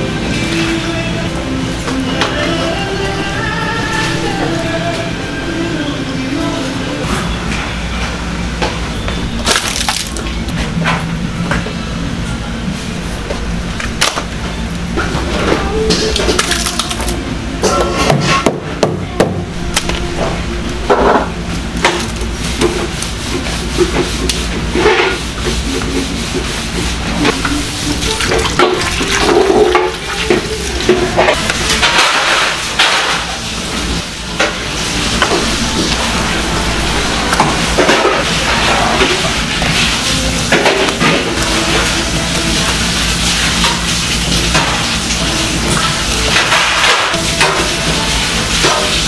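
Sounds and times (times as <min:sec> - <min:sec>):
background music: 0:00.0 - 0:07.0
steady low hum: 0:00.0 - 0:48.5.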